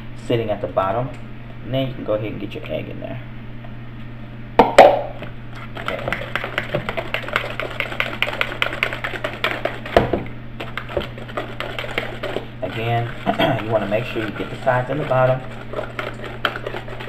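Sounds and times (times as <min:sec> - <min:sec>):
whisk clicking against plastic bowl: 0:05.8 - 0:10.0, 0:10.6 - 0:17.0.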